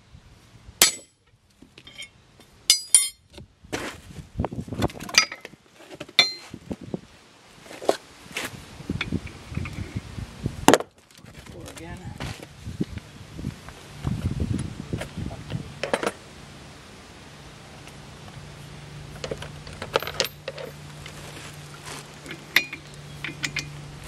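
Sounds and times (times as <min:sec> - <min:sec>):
metal tools clinking: 0:01.8 - 0:03.3, 0:05.1 - 0:05.5, 0:06.2 - 0:06.5, 0:19.2 - 0:21.2, 0:22.2 - 0:23.8
steady low hum: 0:12.1 - 0:24.0.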